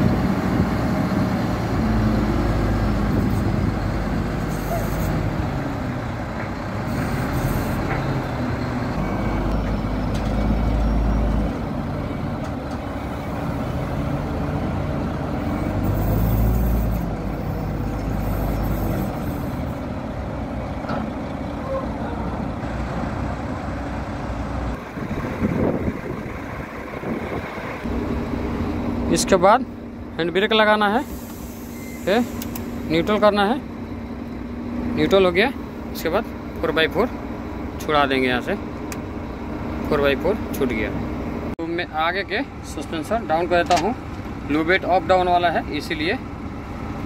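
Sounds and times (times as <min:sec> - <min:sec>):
crane diesel engine rumbling: 0:00.0 - 0:47.0
hiss bursts: 0:31.0 - 0:32.9.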